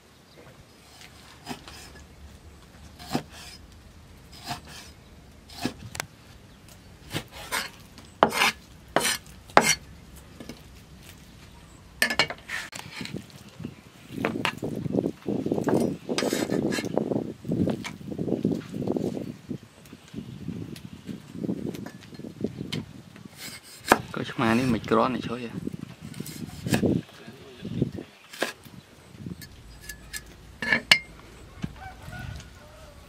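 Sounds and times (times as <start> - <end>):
scraping and rubbing: 0.8 - 14.7, 15.6 - 17.0, 23.3 - 24.9, 25.8 - 27.2, 28.2 - 28.7, 29.3 - 32.6.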